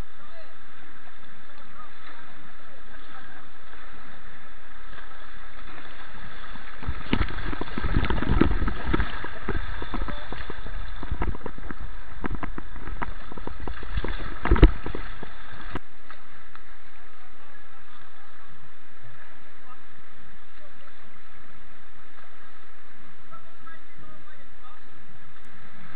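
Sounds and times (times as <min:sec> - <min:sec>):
river water rushing: 0:00.5 - 0:23.0
muffled underwater thumps and knocks: 0:06.7 - 0:16.7.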